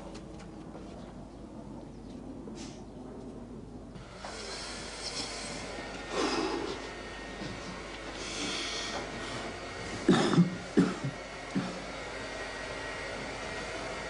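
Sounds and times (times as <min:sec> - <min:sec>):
person coughing: 0:10.1 - 0:11.7.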